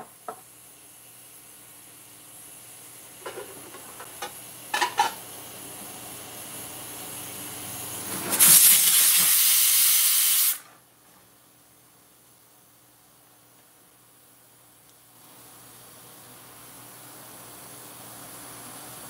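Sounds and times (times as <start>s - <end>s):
soft steam hiss: 5.0s - 10.8s
pressure cooker whistle hiss: 8.3s - 10.7s.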